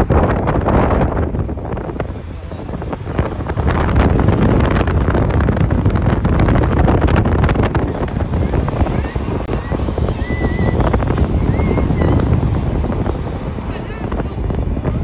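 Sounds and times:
cars passing: 0.0 - 15.0
wind buffeting microphone: 0.0 - 15.0.

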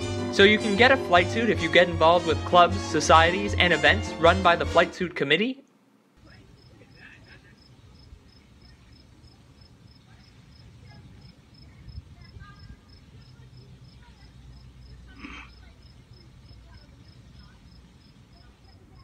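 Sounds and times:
low outdoor rumble: 5.9 - 19.0
cricket chirping: 6.6 - 12.0, 12.6 - 19.0.

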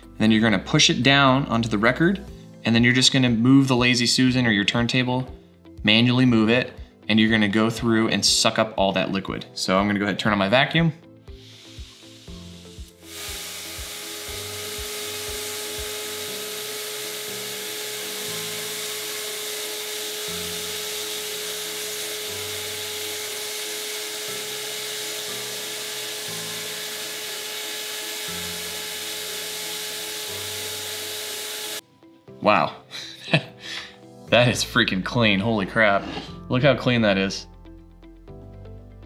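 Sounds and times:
vacuum cleaner whining: 11.3 - 31.8.

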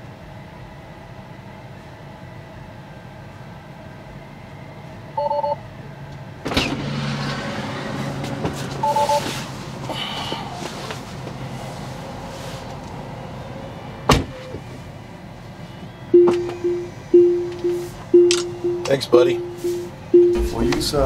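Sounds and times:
two-tone electronic chime: 16.2 - 20.7.

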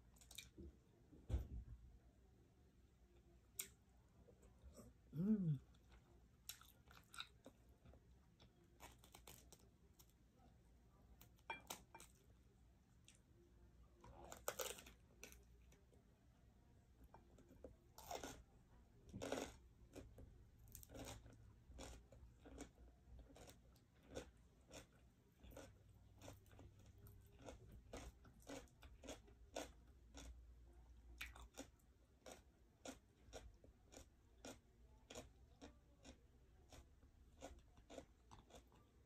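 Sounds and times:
chewing and mouth-smacking: 5.7 - 9.6, 19.1 - 30.4, 31.1 - 39.0.

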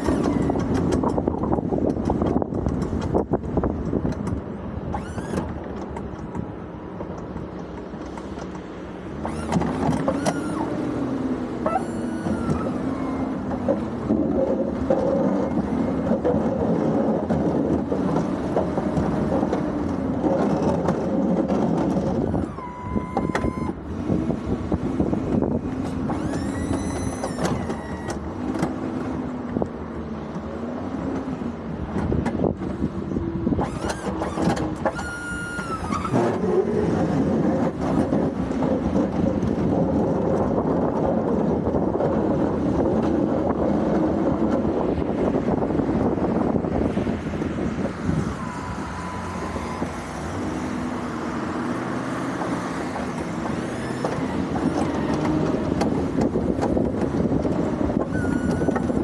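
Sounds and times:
pickup truck engine: 0.0 - 59.0
road and wind noise: 0.0 - 59.0
high squeals: 9.2 - 10.9, 11.6 - 13.5, 22.4 - 23.8, 26.1 - 28.4, 33.6 - 36.4, 48.0 - 52.2, 58.0 - 59.0.

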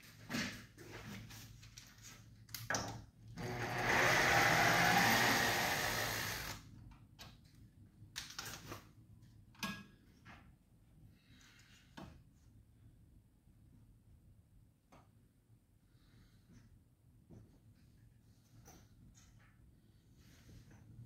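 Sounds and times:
cordless drill driving screw: 3.4 - 6.6.

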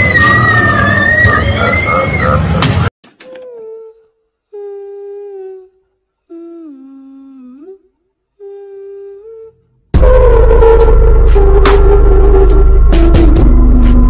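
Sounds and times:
person humming: 3.2 - 9.6.

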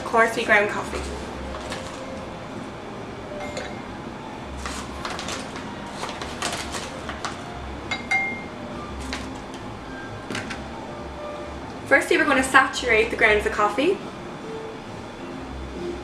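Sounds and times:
spoon clinking against glass: 3.4 - 3.8, 7.9 - 8.5.

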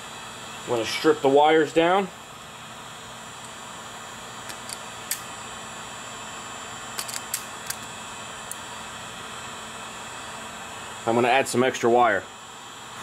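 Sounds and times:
wire strippers clicking: 7.0 - 7.9.

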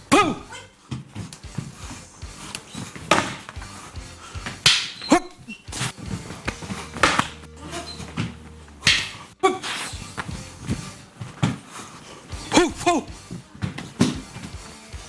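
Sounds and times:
background music: 0.0 - 15.0
sticks striking: 4.4 - 5.3, 6.5 - 7.5, 8.8 - 10.3
person yelling: 12.5 - 13.1.

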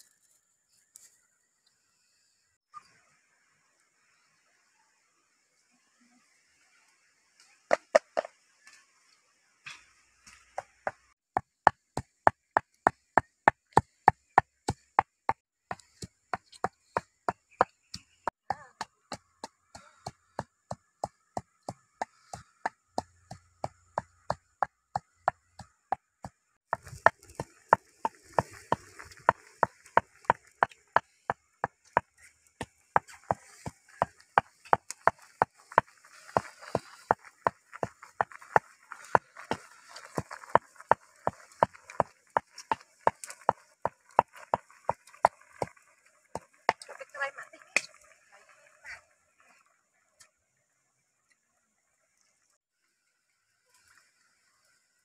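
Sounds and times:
pestle pounding in mortar: 22.6 - 31.8.

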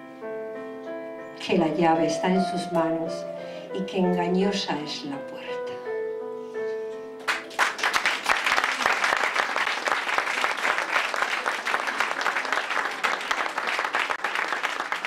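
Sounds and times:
background music: 0.0 - 8.6
audience applauding: 7.3 - 15.0.

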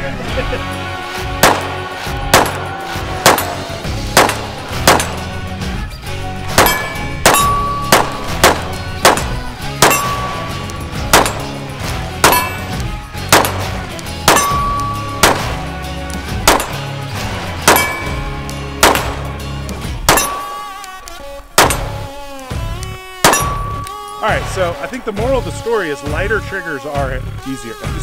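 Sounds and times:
background music: 0.0 - 28.0
pistol shots: 1.4 - 5.4, 6.5 - 17.0, 17.6 - 21.0, 21.6 - 22.2, 23.2 - 24.2.

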